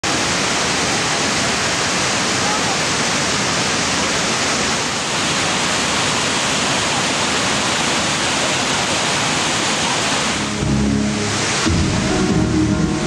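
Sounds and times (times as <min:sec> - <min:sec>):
waterfall rushing: 0:00.0 - 0:13.0
low music: 0:10.4 - 0:13.0.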